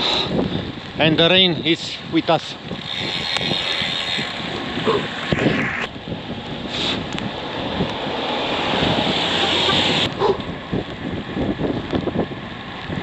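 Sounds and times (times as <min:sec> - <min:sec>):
wind buffeting microphone: 0:00.0 - 0:13.0
tyres hissing on wet asphalt: 0:01.2 - 0:10.2.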